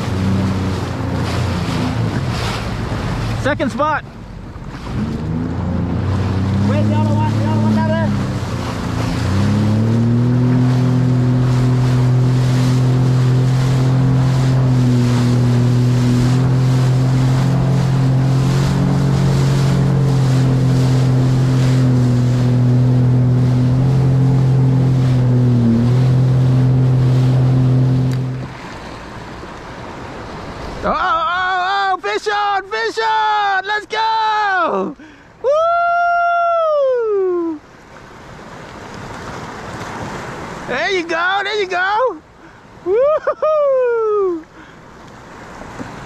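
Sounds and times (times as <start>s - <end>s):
jet ski engine running: 0.0s - 31.8s, 44.0s - 46.0s
water splashing: 0.0s - 32.5s, 37.2s - 46.0s.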